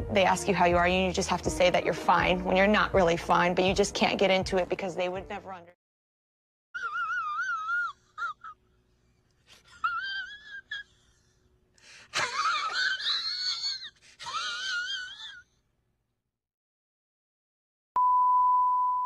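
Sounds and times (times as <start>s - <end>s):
man crying in falsetto wail: 6.8s - 8.6s, 9.6s - 11.0s, 12.2s - 15.4s.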